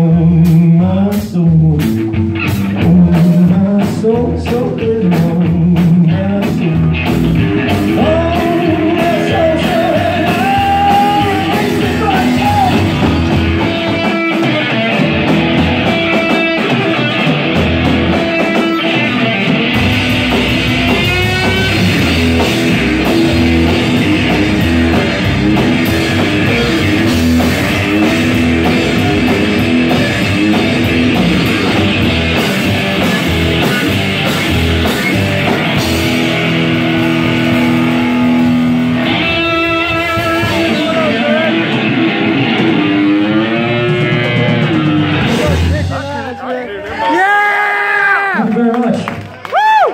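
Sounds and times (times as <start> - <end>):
electric guitar: 0.0 - 46.0
drum kit: 0.0 - 46.4
upright double bass: 19.6 - 46.0.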